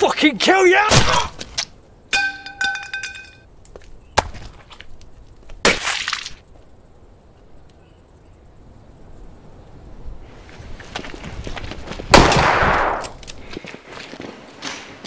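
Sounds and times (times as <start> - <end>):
sharp impacts: 2.1 - 3.4.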